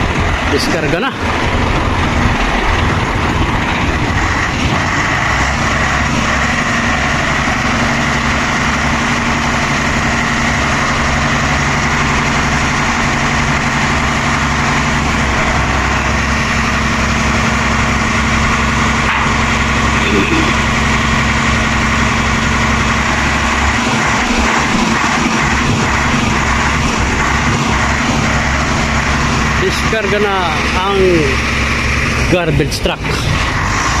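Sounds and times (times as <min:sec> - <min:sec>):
truck diesel engine idling: 0:00.0 - 0:34.0.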